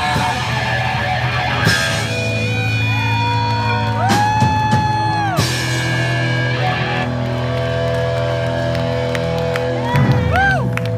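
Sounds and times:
live rock band playing: 0.0 - 10.9.

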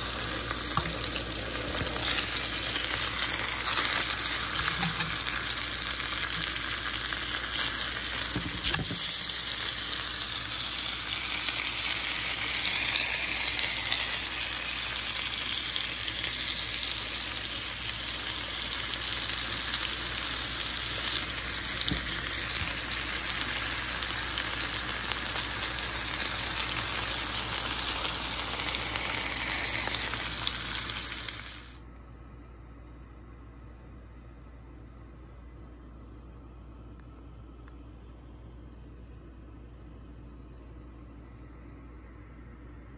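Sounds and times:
fat sizzling in a pan: 0.0 - 31.8.

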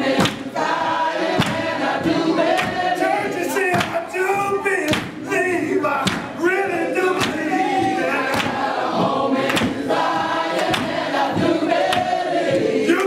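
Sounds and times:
choir singing gospel song: 0.0 - 13.0
sharp beat: 0.0 - 13.0.

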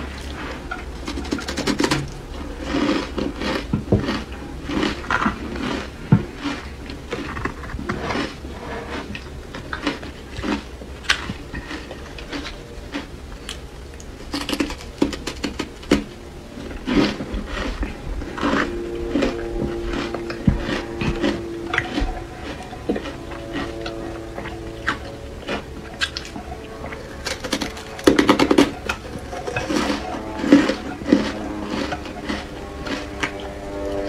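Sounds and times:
ice crunching while chewed: 0.0 - 34.0
ice scraping in plastic container: 0.4 - 9.2, 27.2 - 33.0.

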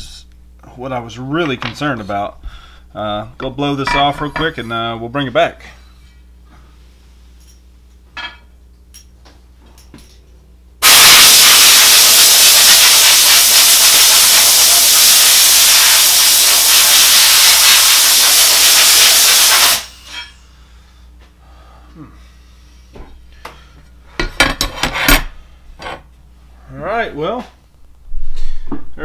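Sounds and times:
compressed air blow gun hissing: 10.8 - 20.1.

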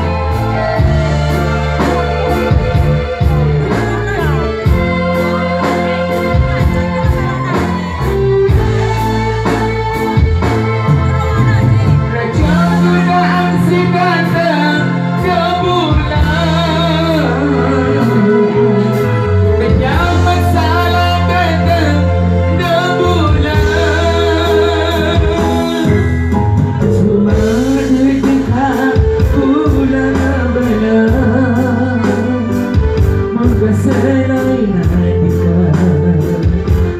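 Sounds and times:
percussion beat: 0.0 - 14.6
keyboard: 0.0 - 36.9
live band music: 0.0 - 36.9
singer holding long notes: 0.0 - 36.9.

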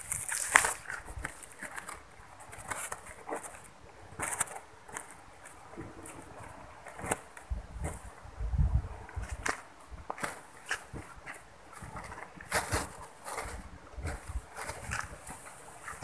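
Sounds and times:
kite fabric rustling and flapping: 0.0 - 16.0
low buffeting rumble: 5.6 - 10.2.

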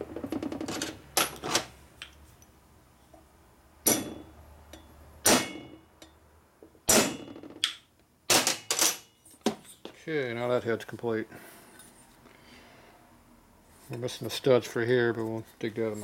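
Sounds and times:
hammer striking metal punch: 3.8 - 5.9, 6.9 - 7.4.

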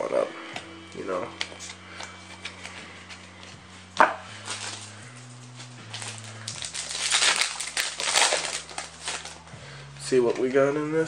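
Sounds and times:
foil pack crinkling and tearing: 4.3 - 9.4.

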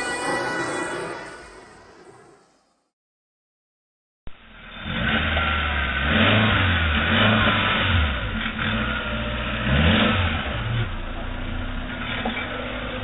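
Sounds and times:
off-road vehicle engine revving: 4.5 - 13.0.

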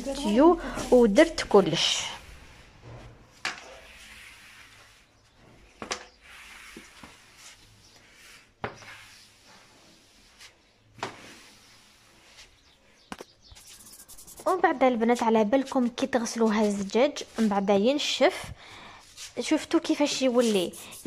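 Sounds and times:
squeegee scraping tiled floor: 0.0 - 12.8, 19.0 - 21.0.

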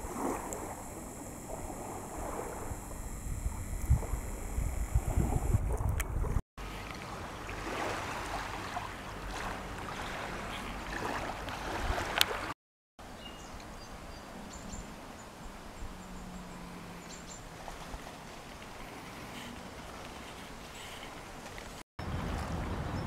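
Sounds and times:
lapping water: 0.0 - 12.6, 17.4 - 21.8
wind: 0.0 - 23.0.

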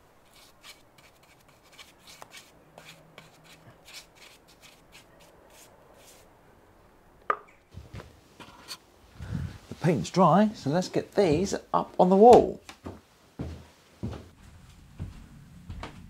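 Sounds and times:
paintbrush strokes on wood: 0.2 - 6.3.

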